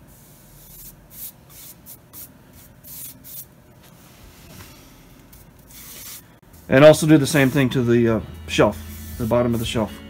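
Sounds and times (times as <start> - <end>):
brush stroking on wood: 3.9 - 10.0.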